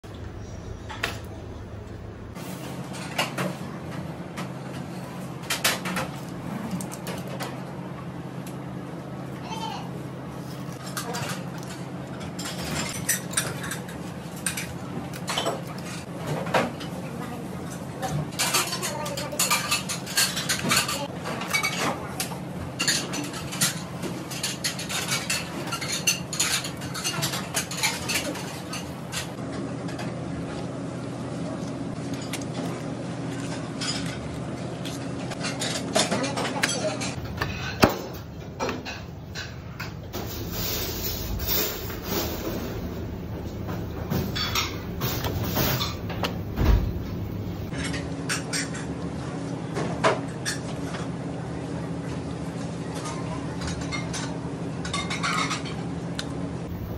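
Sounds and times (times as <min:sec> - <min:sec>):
steady low hum: 0:37.0 - 0:48.0, 0:56.6 - 0:56.9.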